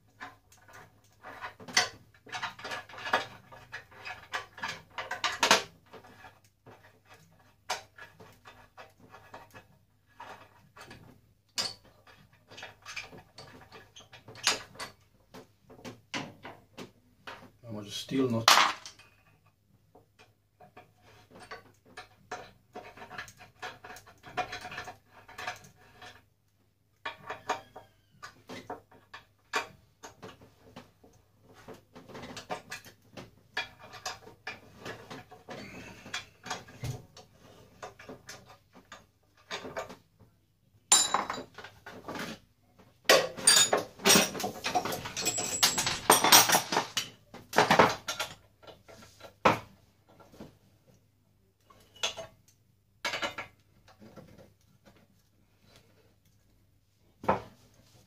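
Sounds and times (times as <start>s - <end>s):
steel parts clinking and rattling: 43.1s - 48.8s.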